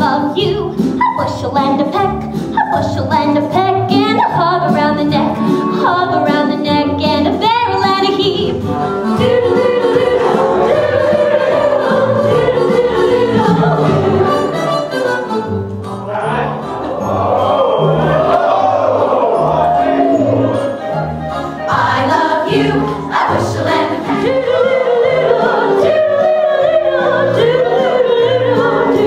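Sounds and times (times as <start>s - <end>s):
woman singing with vibrato: 0.0s - 14.6s
musical accompaniment: 0.0s - 29.0s.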